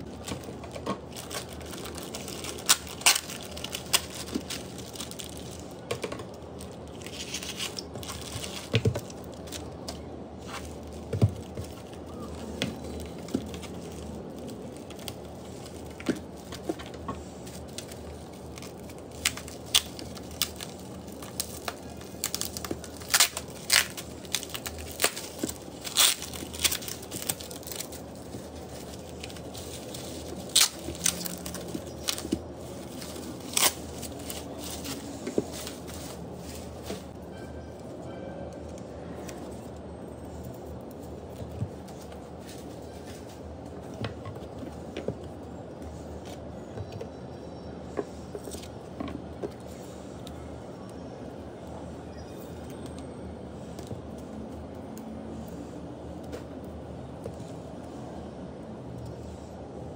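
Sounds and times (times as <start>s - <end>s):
plastic bag tearing: 0.0s - 5.8s, 17.5s - 37.2s
crinkling plastic crackles: 0.0s - 46.8s.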